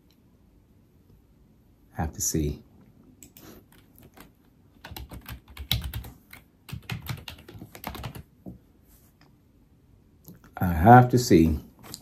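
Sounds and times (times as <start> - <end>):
computer keyboard typing: 3.2 - 8.3.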